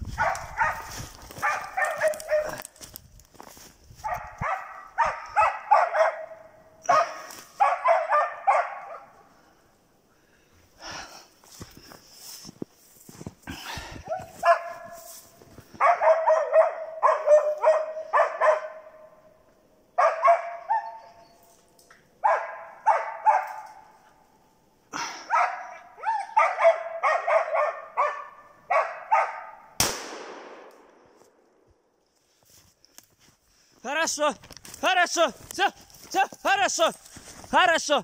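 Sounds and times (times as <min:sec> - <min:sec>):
dogs barking: 0:00.1 - 0:02.7, 0:04.0 - 0:09.3, 0:14.0 - 0:15.1, 0:15.7 - 0:19.2, 0:20.0 - 0:21.3, 0:22.2 - 0:24.1, 0:25.0 - 0:29.8
echoing gunshot: 0:29.8 - 0:31.2.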